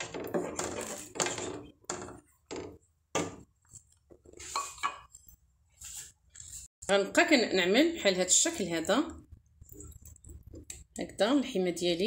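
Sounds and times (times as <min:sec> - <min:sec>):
wooden spoon scraping a pot: 0:00.0 - 0:06.7.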